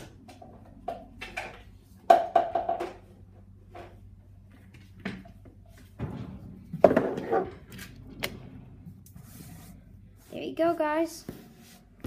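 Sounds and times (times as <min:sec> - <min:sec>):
hard objects knocking and clattering: 0:00.2 - 0:03.1, 0:05.0 - 0:08.4.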